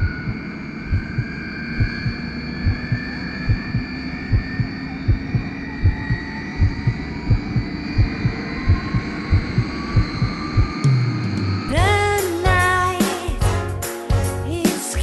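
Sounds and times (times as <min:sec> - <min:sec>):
heartbeat thumps: 0:00.0 - 0:10.8
sustained droning tone: 0:00.0 - 0:11.8.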